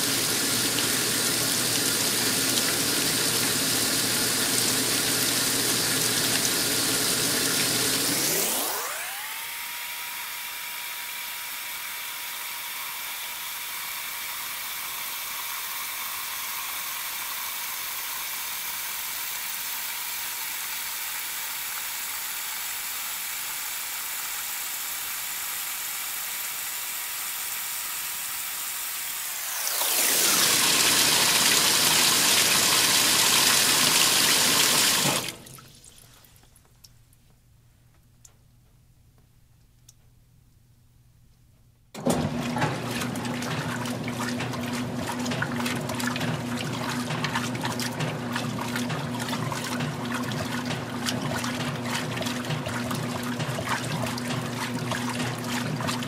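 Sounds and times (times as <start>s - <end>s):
water rushing into washer tub: 0.0s - 9.8s, 13.2s - 36.4s, 42.0s - 56.0s.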